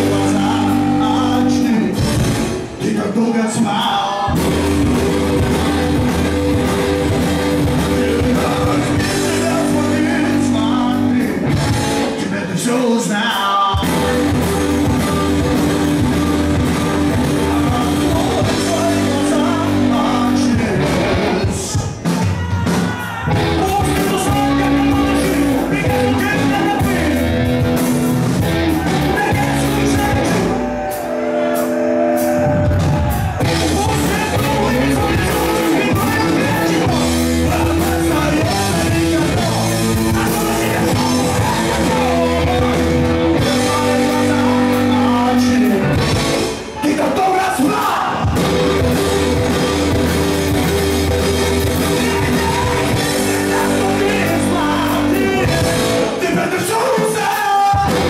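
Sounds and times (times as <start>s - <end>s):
lead singer singing: 0.0s - 58.0s
rock band playing live: 0.0s - 58.0s
crowd singing along: 28.6s - 58.0s.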